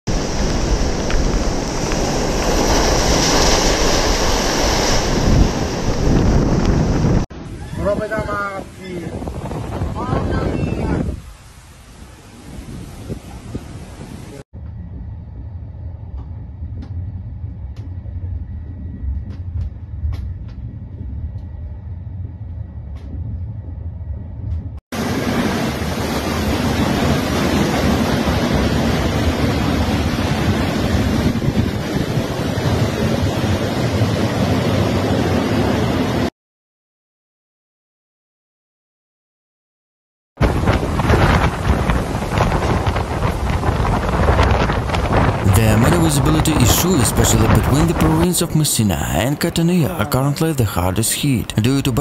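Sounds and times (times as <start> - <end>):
waves breaking on shore: 0.1 - 14.5, 25.0 - 36.3, 40.4 - 52.0
wind on microphone: 0.1 - 36.3, 40.4 - 48.6
train rumbling on rails: 40.4 - 46.8.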